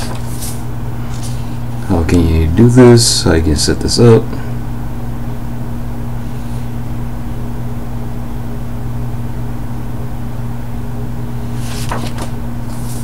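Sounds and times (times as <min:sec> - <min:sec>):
page being turned: 0:00.0 - 0:01.4, 0:11.5 - 0:13.0
low machine hum: 0:00.0 - 0:13.0.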